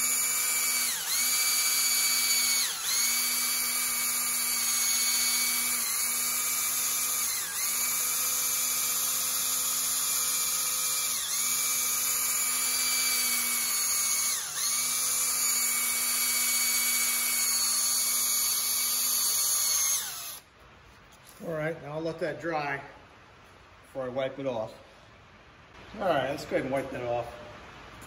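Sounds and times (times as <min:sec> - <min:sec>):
polisher motor whine: 0:00.0 - 0:20.4.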